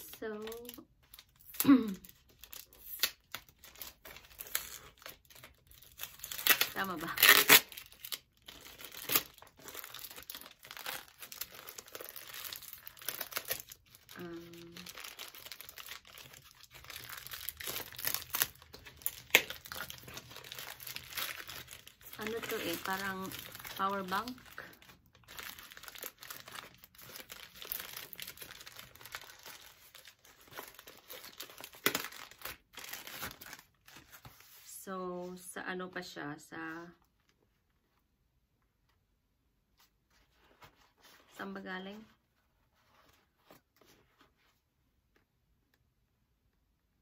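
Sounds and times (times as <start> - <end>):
plastic and paper crinkling tearing: 0.0 - 34.7.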